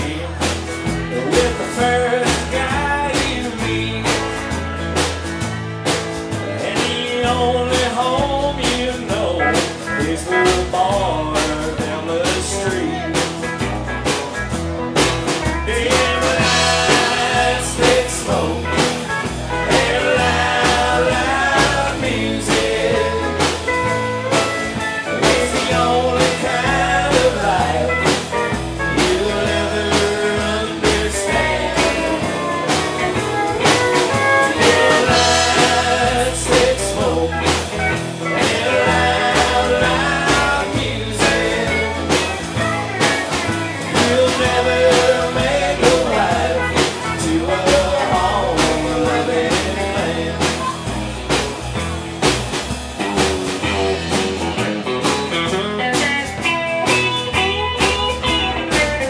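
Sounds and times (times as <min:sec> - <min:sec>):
acoustic guitar: 0:00.0 - 0:59.0
electric guitar: 0:00.0 - 0:59.0
steady beat: 0:13.0 - 0:59.0.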